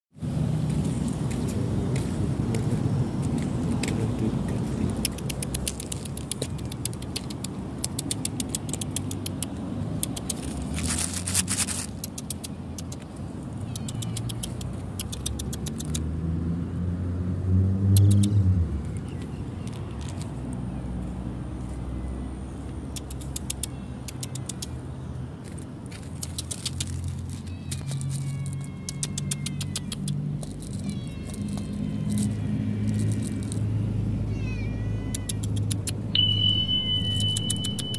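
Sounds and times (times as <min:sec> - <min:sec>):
road traffic rumble: 0:00.1 - 0:37.9
low engine hum: 0:00.2 - 0:37.9
person making kissing clicks: 0:04.9 - 0:16.1, 0:17.9 - 0:18.4, 0:22.8 - 0:24.8, 0:26.0 - 0:27.9, 0:28.8 - 0:32.3, 0:35.1 - 0:36.1, 0:37.2 - 0:37.9
rapid sharp clicks: 0:05.0 - 0:10.5, 0:13.9 - 0:16.0.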